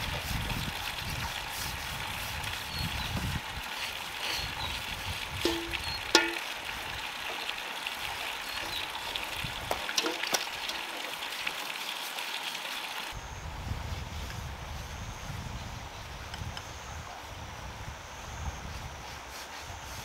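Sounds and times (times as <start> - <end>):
wind rumble on microphone: 0.0 - 6.1, 9.2 - 9.8, 13.2 - 20.0
outdoor hiss: 0.0 - 20.0
metal paint pot clinking: 5.4 - 6.7, 9.6 - 11.1.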